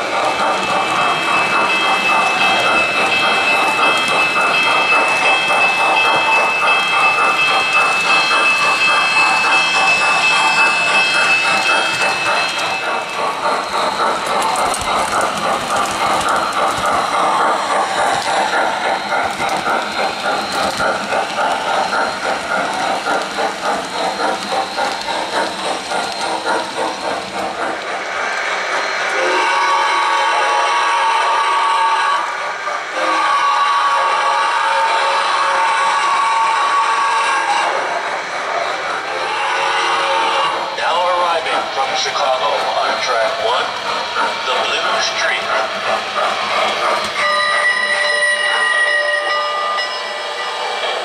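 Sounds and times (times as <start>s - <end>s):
model train wheels clattering: 0.0s - 28.1s, 36.3s - 49.4s.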